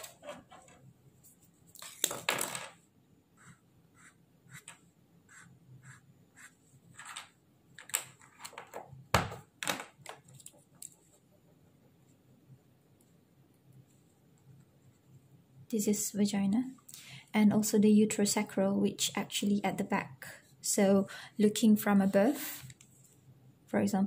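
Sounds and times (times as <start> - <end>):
highlighter scratching on paper: 3.4 - 6.7.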